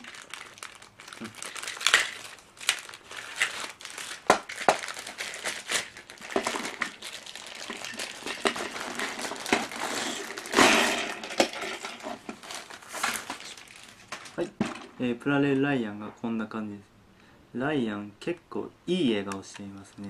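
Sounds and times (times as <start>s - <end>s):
plastic packaging crinkling: 0.0s - 14.6s.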